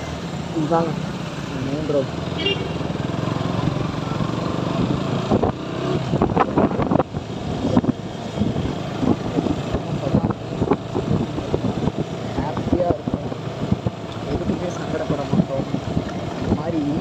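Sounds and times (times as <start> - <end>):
motorcycle engine accelerating: 0.0 - 17.0
wind buffeting microphone: 5.1 - 17.0.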